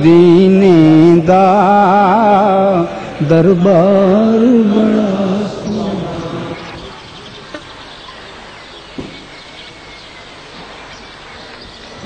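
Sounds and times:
steady background hiss: 0.0s - 12.0s
faint knocks: 9.0s - 9.4s.

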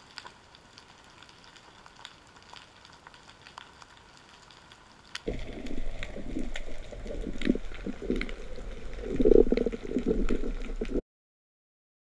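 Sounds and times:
muffled underwater rumbling: 5.3s - 11.0s.

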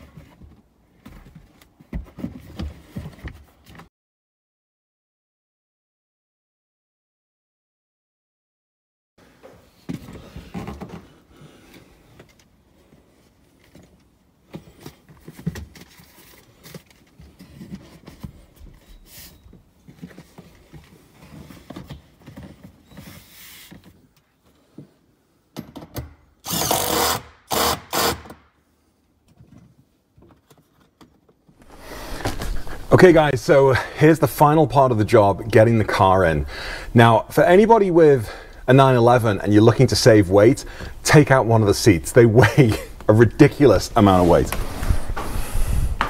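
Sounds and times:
knocks and rustles of parts: 0.0s - 3.9s, 9.4s - 26.3s, 29.2s - 33.0s
impact driver bursts: 26.4s - 28.4s.

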